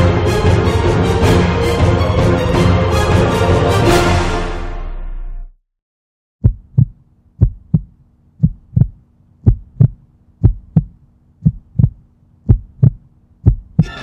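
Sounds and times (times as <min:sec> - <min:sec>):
heartbeat thumps: 0:06.4 - 0:13.9.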